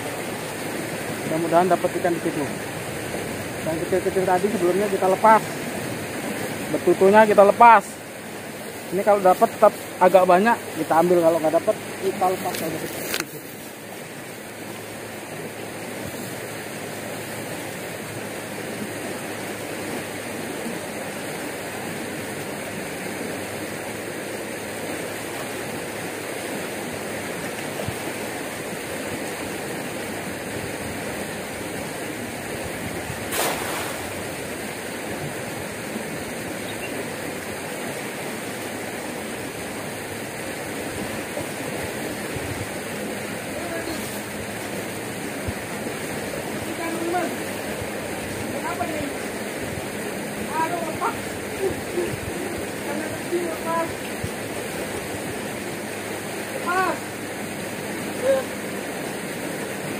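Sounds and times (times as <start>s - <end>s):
floodwater rushing in stream: 0.0s - 59.9s
sharp knock or splash: 33.3s - 34.2s.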